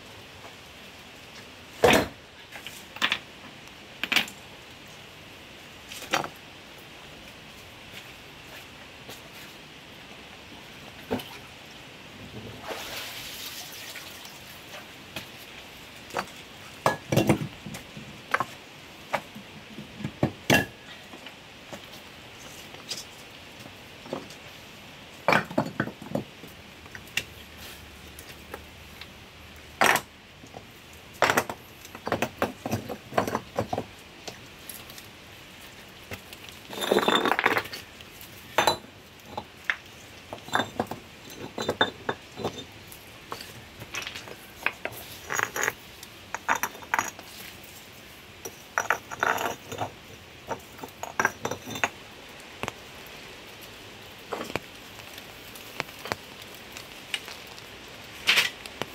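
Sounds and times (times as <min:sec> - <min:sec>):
stones knocking together: 0:31.2 - 0:33.9, 0:36.1 - 0:37.8, 0:48.8 - 0:52.0
stone scraping on stone: 0:36.6 - 0:37.8, 0:44.6 - 0:47.3, 0:48.5 - 0:52.0.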